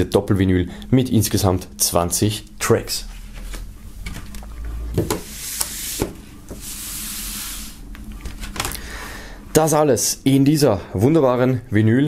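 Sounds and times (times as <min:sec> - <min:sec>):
paper sleeves rustling and sliding: 0:05.2 - 0:08.6.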